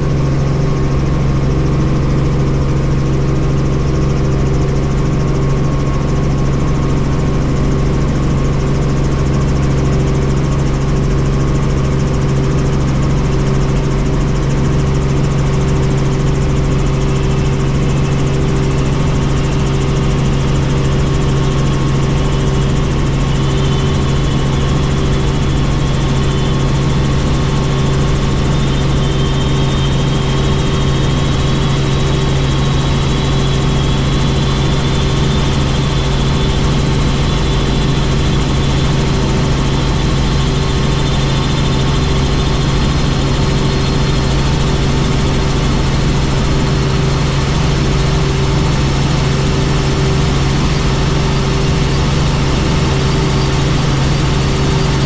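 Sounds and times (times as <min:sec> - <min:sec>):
helicopter engine and rotors: 0:00.0 - 0:55.0
faint high whine: 0:11.8 - 0:55.0.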